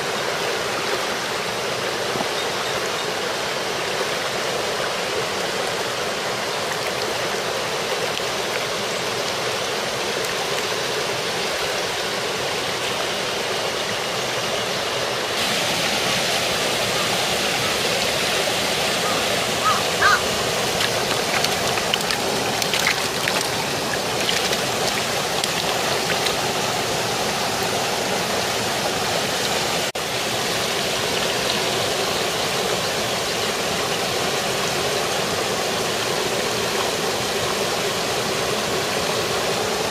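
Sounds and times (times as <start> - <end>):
stream rushing over stones: 0.0 - 39.9.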